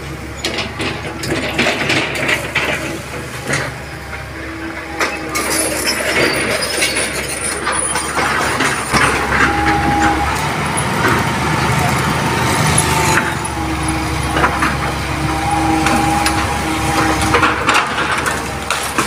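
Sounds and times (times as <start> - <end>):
excavator diesel engine running: 0.0 - 19.0
motorbikes passing: 8.3 - 19.0.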